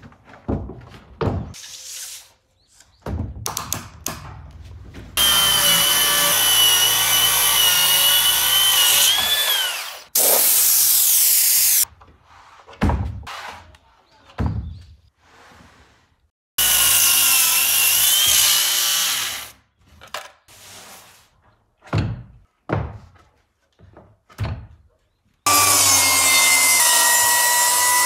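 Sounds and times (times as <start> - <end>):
boards knocking and clattering: 0.0 - 1.6
circular saw cutting wood: 5.2 - 11.8, 16.6 - 19.6, 25.5 - 28.0.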